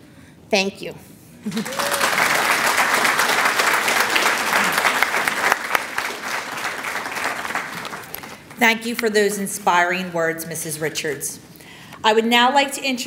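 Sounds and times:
audience applauding: 0:01.5 - 0:08.6.

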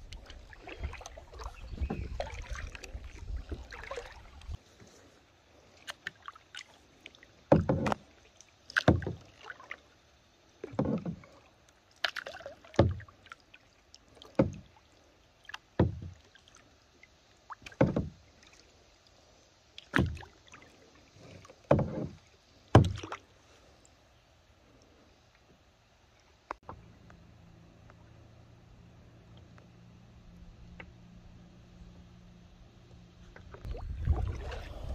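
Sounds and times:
kayak paddle splashing in water: 0:00.0 - 0:09.9, 0:10.6 - 0:19.0, 0:19.7 - 0:23.6, 0:33.3 - 0:34.9.

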